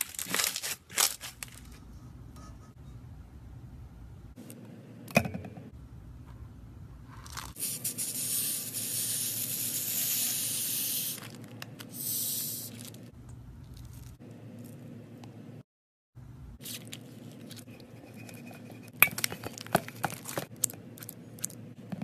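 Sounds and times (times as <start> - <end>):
foam hissing out: 7.6 - 11.2.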